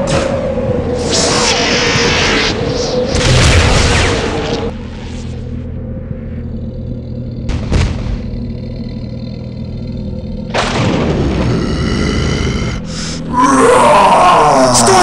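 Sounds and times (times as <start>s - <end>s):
low rumble: 0.0s - 14.2s
cartoon giant footsteps booming: 7.4s - 8.8s.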